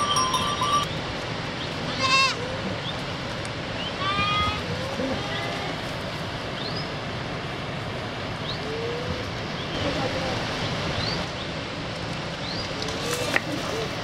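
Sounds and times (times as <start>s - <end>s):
high rising chirps: 0.0s - 1.0s
steady rushing outdoor noise: 0.0s - 14.0s.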